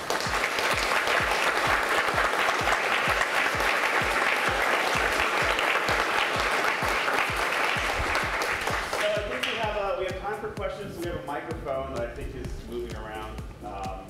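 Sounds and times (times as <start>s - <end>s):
audience applauding: 0.0s - 9.8s
music with thumping beat: 0.0s - 14.0s.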